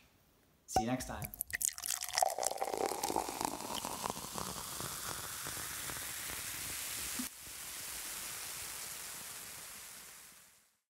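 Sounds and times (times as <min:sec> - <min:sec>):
static-like hiss: 0:02.5 - 0:10.9.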